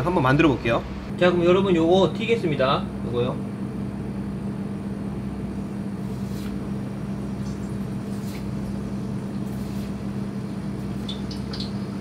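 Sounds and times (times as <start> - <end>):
low mechanical hum: 0.0 - 12.0
faint oil crackles: 5.9 - 12.0.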